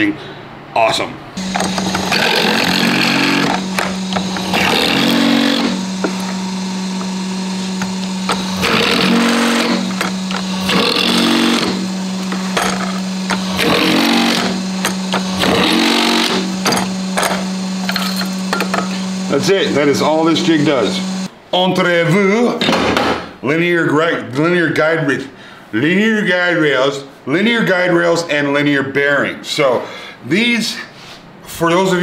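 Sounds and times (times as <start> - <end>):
drill bit grinding through aluminum: 1.4 - 21.3
drill press motor running: 1.4 - 21.3.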